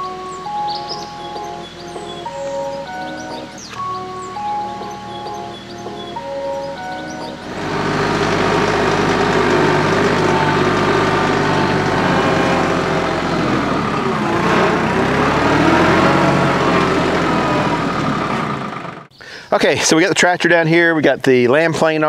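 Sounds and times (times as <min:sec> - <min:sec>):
tractor diesel engine running: 0:00.0 - 0:19.1.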